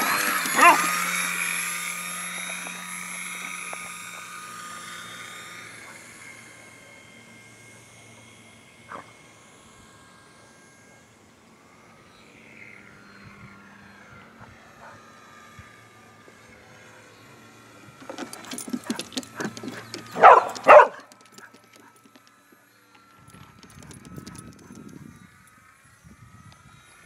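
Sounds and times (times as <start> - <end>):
model plane motor whine: 0.0 - 27.0
dog barking: 0.6 - 1.0, 18.8 - 21.9.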